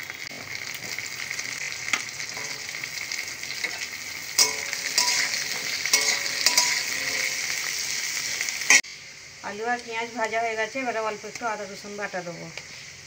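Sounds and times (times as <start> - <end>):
potato sticks sizzling in oil: 0.0 - 13.0
metal spatula scraping a pan: 3.6 - 7.6.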